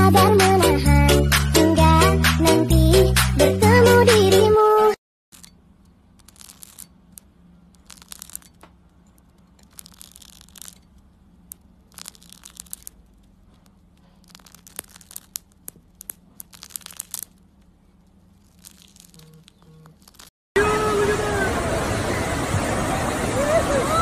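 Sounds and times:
blade cutting hook-and-loop fastener: 5.3s - 17.6s
faint steady hum: 5.3s - 24.0s.

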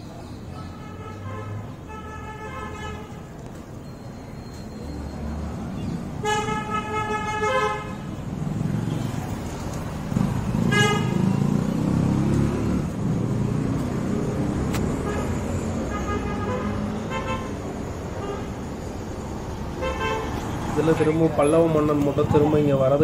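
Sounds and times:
traffic rumble: 0.0s - 23.0s
vehicle horns honking: 0.7s - 3.3s, 5.8s - 8.1s, 10.6s - 11.3s, 14.9s - 18.6s, 19.7s - 20.6s.

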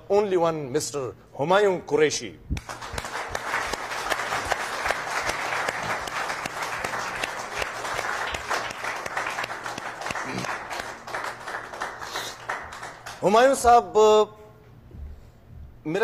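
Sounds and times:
audience applauding: 2.6s - 13.6s.

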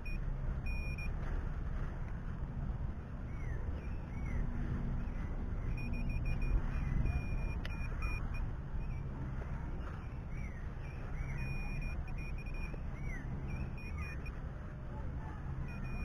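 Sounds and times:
metal detector beeping: 0.0s - 1.1s, 5.6s - 9.1s, 10.9s - 14.4s, 15.6s - 16.0s.

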